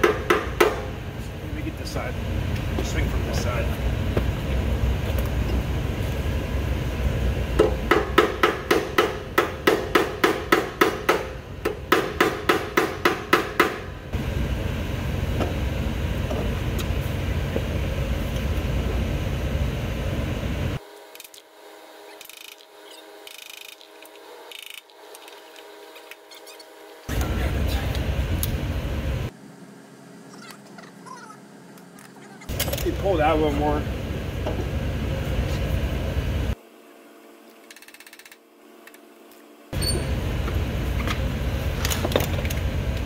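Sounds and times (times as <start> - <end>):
hammer striking metal: 0.0 - 0.9, 7.6 - 13.9
steady low hum: 0.0 - 37.7, 38.4 - 43.0.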